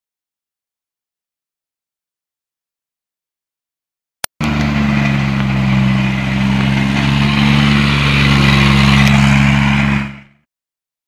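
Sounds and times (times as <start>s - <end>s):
race car engine at low revs: 4.4s - 10.4s.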